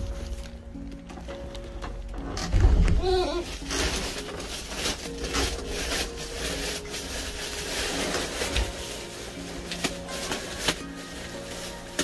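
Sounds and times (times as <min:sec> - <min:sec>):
plastic bags rustling: 0:00.0 - 0:12.0.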